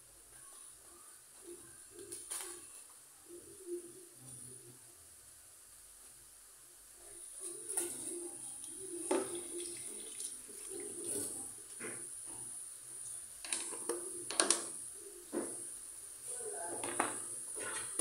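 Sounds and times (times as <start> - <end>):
tap water running into sink: 9.0 - 11.3.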